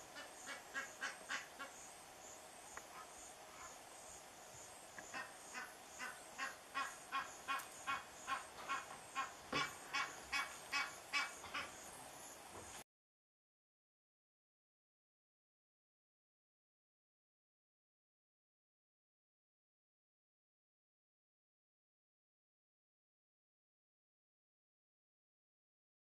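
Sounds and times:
goose honking: 0:00.1 - 0:01.8, 0:05.1 - 0:11.7.

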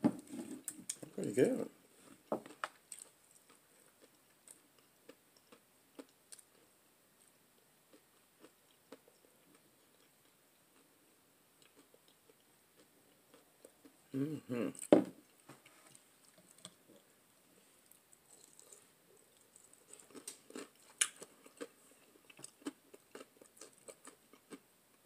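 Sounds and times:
quiet chewing clicks: 0:02.5 - 0:07.3, 0:07.9 - 0:10.9, 0:11.6 - 0:14.0, 0:14.7 - 0:17.1, 0:17.8 - 0:24.6.

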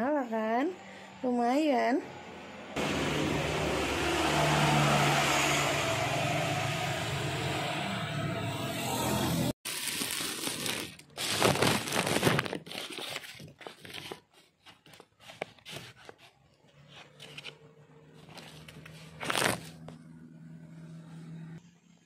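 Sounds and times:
foil wrapper crinkling: 0:09.7 - 0:16.2, 0:18.3 - 0:19.9.

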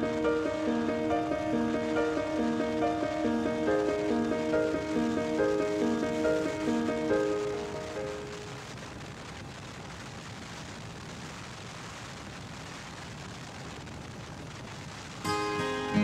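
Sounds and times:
acoustic guitar music: 0:00.0 - 0:08.4, 0:15.2 - 0:16.0.

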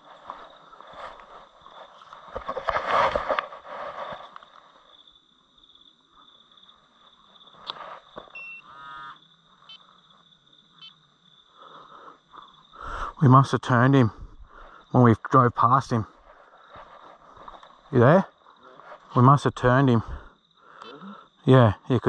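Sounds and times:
loud rustling and scuffing: 0:00.0 - 0:04.8, 0:16.2 - 0:17.9
night insects trilling: 0:00.0 - 0:22.0
short faint calls or beeps: 0:08.3 - 0:09.9.

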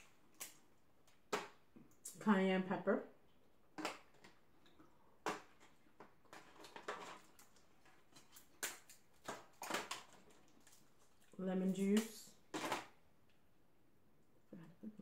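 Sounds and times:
crab shells snapping and cracking: 0:08.2 - 0:10.8.

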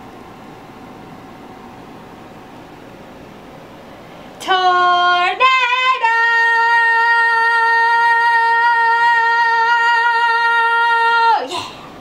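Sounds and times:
woman singing unaccompanied: 0:04.4 - 0:11.6.

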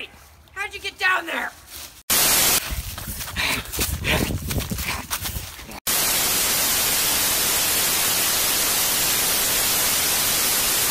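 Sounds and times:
tv static hiss: 0:02.1 - 0:02.6, 0:05.9 - 0:10.9.

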